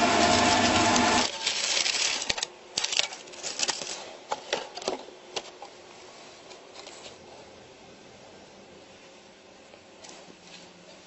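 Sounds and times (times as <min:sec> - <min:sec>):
paper crinkling and rustling: 0:00.2 - 0:07.5.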